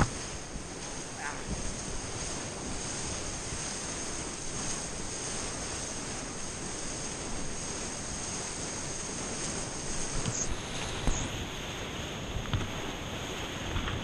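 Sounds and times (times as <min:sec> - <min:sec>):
whitewater rushing: 0:00.0 - 0:14.0
faint high whine: 0:03.3 - 0:13.4.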